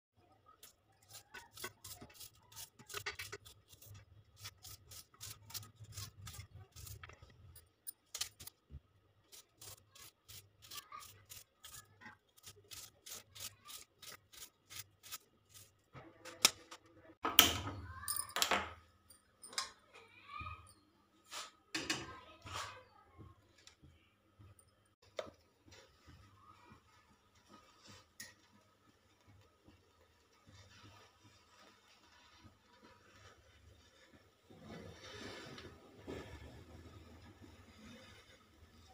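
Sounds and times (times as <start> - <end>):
knife slicing onion: 0.6 - 7.2, 9.3 - 15.8.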